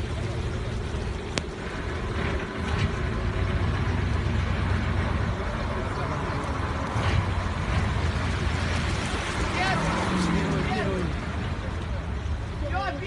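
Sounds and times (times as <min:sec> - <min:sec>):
rushing splashing water: 0:00.0 - 0:13.0
truck engine under load: 0:00.1 - 0:11.6.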